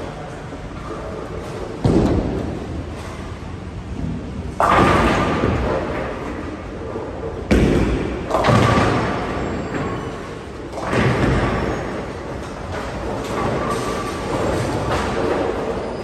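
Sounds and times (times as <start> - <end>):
bowling pins crashing: 4.6 - 6.6, 7.4 - 15.8
bowling ball heavy thud: 7.4 - 15.7.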